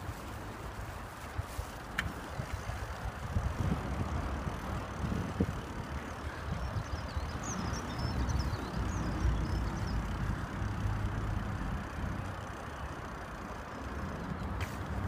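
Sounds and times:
wind buffeting microphone: 0.0s - 13.2s
small bird chirping: 6.2s - 10.4s.

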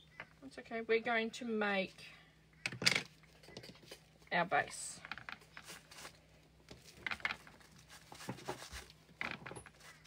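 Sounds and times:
soft rustles of bubble wrap: 5.2s - 10.0s.

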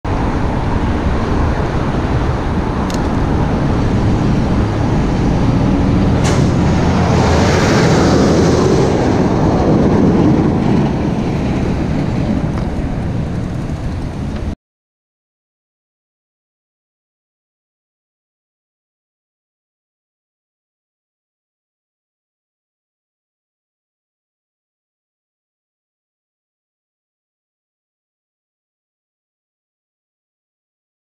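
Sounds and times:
road traffic: 0.0s - 14.6s
wind on microphone: 0.0s - 14.6s
truck driving past: 0.1s - 14.6s.

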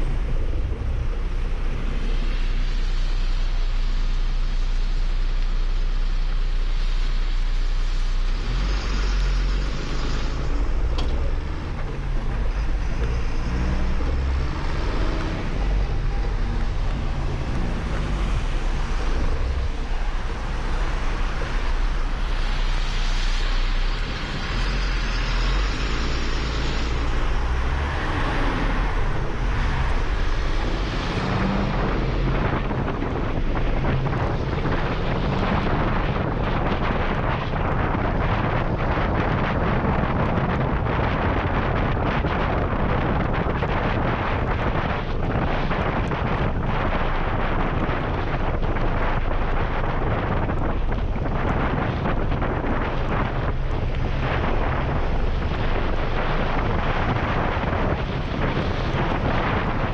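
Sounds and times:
truck diesel engine driving: 0.0s - 59.9s
wind buffeting microphone: 0.0s - 59.9s
tyres hissing on wet road: 1.2s - 36.8s.

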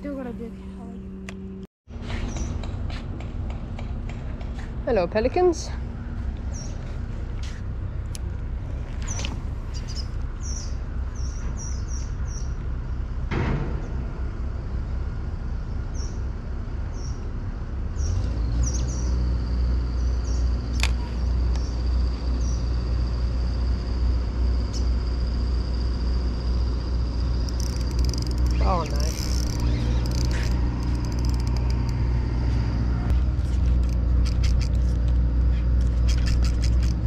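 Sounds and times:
road traffic rumble: 0.0s - 37.0s
small birds chirping: 6.5s - 6.9s, 9.0s - 12.6s, 18.0s - 19.2s, 19.9s - 22.8s, 27.4s - 31.9s, 35.5s - 37.0s.

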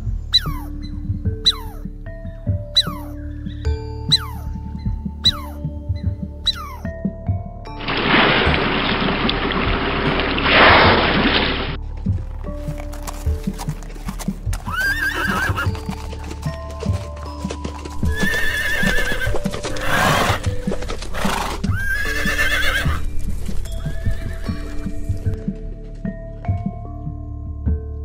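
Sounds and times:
background music: 0.0s - 28.0s
zebras barking calls: 0.3s - 1.9s, 2.7s - 3.3s, 4.0s - 4.6s, 5.2s - 5.8s, 6.4s - 7.0s, 14.5s - 25.0s.

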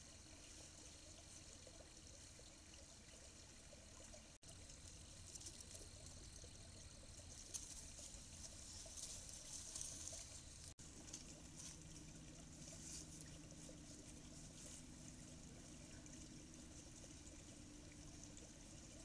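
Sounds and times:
faint steady hiss: 0.0s - 19.0s
animal rustling through dry grass: 7.0s - 18.8s.

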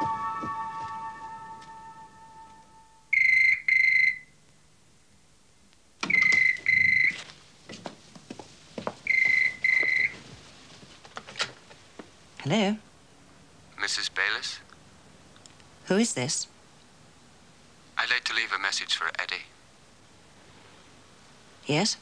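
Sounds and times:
held music chord: 0.0s - 3.1s.

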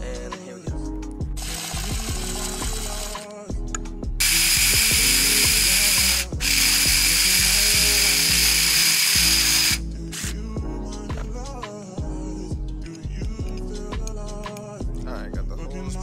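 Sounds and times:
hip-hop music: 0.0s - 16.0s
power drill boring metal: 1.4s - 3.2s, 4.2s - 10.3s.

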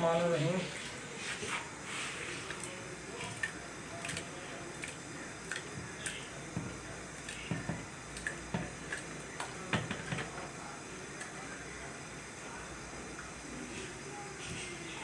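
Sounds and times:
soft wet squishes: 0.9s - 10.4s.

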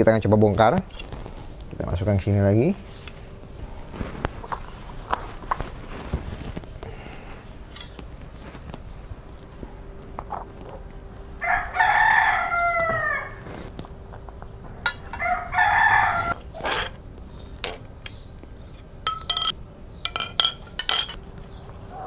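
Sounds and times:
rooster crowing: 11.4s - 13.5s, 15.0s - 16.4s
metal poles clinking: 14.8s - 15.3s, 17.6s - 21.2s.

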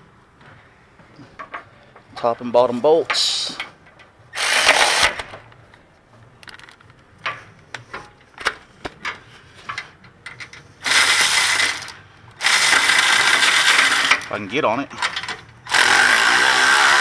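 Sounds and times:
electric ratchet running: 4.4s - 5.2s, 10.8s - 14.3s, 15.7s - 17.0s.

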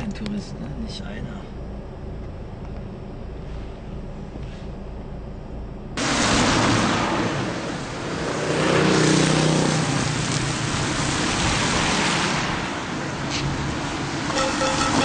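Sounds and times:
road traffic noise: 0.0s - 15.0s
motor vehicle passing: 6.0s - 15.0s.

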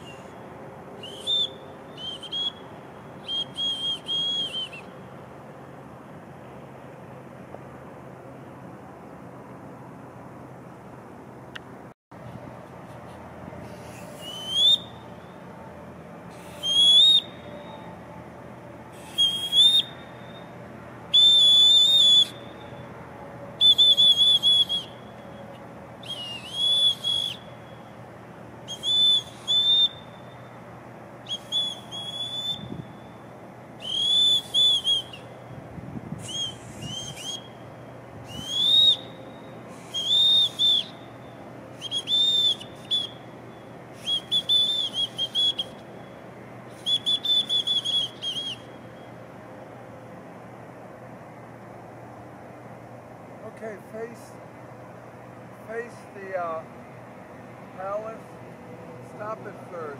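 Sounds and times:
boatswain's whistle blasts: 1.0s - 2.6s, 3.2s - 4.9s, 13.8s - 15.4s, 16.3s - 18.0s, 18.9s - 22.9s, 23.6s - 27.9s, 28.7s - 30.6s, 31.3s - 33.1s, 33.8s - 35.3s, 36.2s - 37.6s, 38.3s - 43.3s, 44.0s - 45.8s, 46.7s - 49.1s.

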